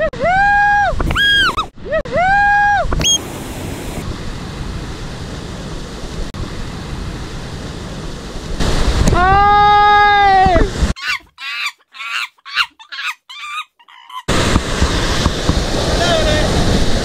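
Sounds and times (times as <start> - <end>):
loud high-pitched call: 1.1 - 1.7, 3.0 - 3.2
surf washing over rocks: 3.0 - 11.0, 14.3 - 17.0.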